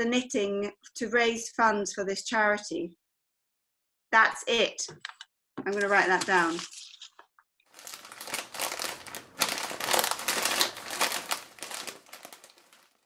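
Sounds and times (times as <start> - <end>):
crinkling rustle: 6.1 - 13.0.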